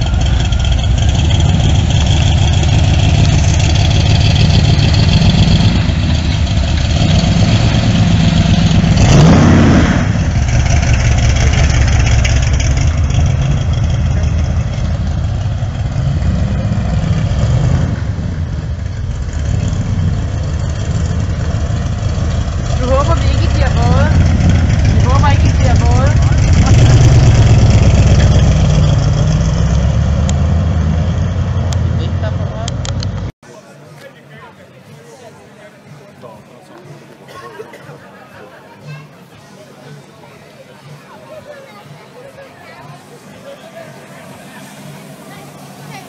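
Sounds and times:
car engine revving: 0.0s - 33.3s.

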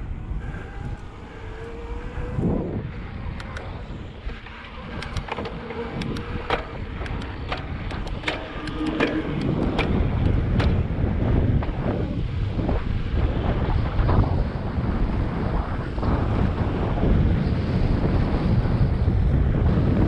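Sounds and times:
wind buffeting microphone: 0.0s - 20.0s
sharp irregular clicks and rattles: 4.4s - 10.8s.

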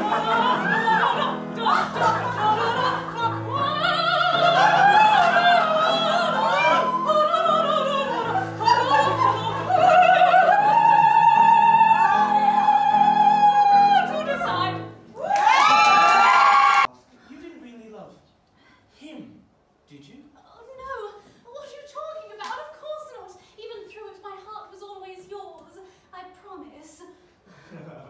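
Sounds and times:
woman singing operatic melody: 0.0s - 15.0s.

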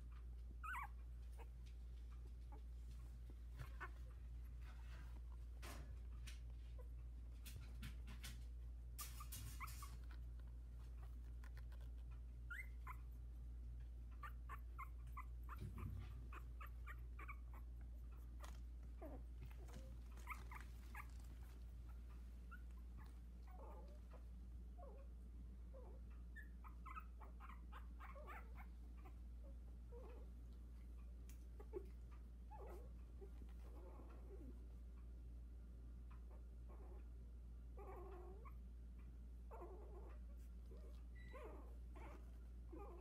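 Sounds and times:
puppies squeaking and whimpering: 0.6s - 1.6s, 3.5s - 4.2s, 9.0s - 13.3s, 14.2s - 25.1s, 25.7s - 29.2s, 39.5s - 43.0s.

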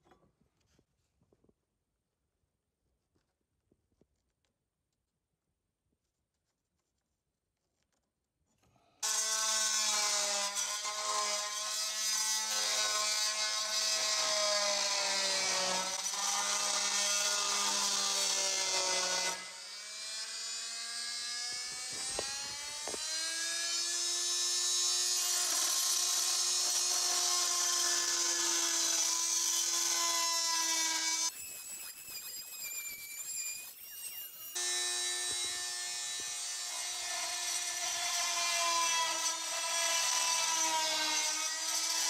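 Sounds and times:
multi-tool cutting wood: 9.0s - 42.0s.

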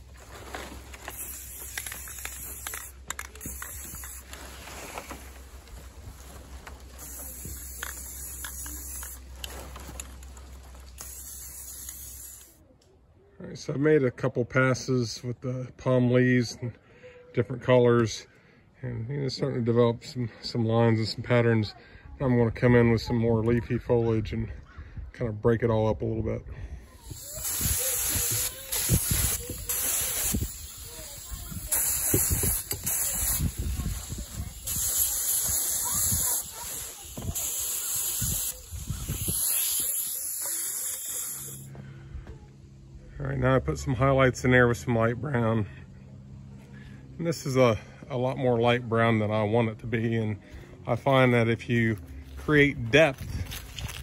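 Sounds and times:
paint spray gun hissing: 0.0s - 12.6s, 27.0s - 41.7s.

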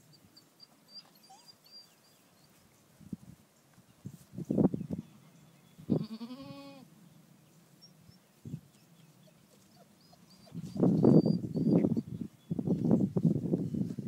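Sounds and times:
goat bleating: 5.9s - 6.9s.

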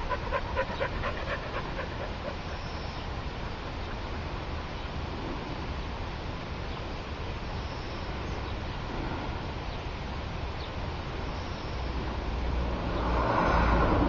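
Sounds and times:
road vehicle passing: 0.0s - 4.7s, 11.8s - 14.0s.

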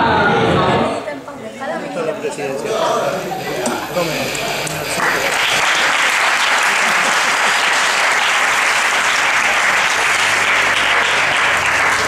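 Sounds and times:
crowd applauding: 4.3s - 12.0s.

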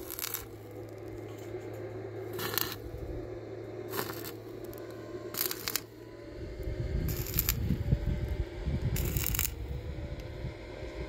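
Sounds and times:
steady low hum: 0.0s - 11.0s
objects clattering and scraping: 1.1s - 2.8s.

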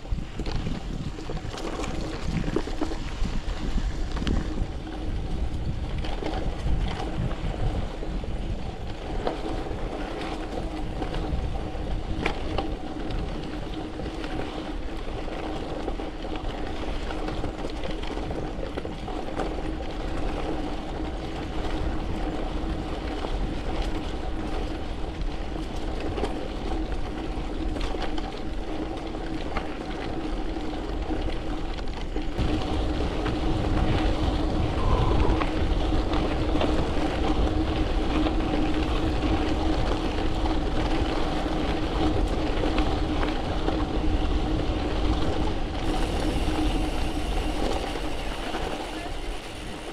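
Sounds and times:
tyres rolling on gravel: 0.0s - 49.9s
wind buffeting microphone: 0.0s - 49.9s
small rattles and clicks: 0.2s - 34.6s.

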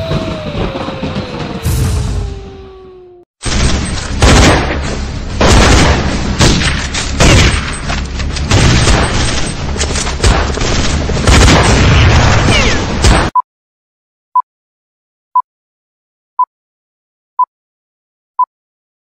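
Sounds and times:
booms and blasts: 0.0s - 7.8s, 8.4s - 9.6s, 10.2s - 13.3s.

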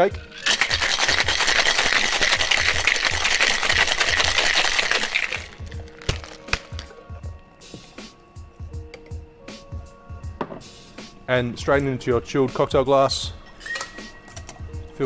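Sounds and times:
ice rattling in cocktail shaker: 0.0s - 6.8s.

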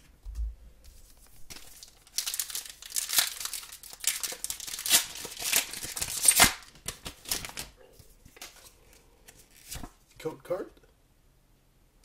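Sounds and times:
foil wrapper crinkling: 1.0s - 7.7s.

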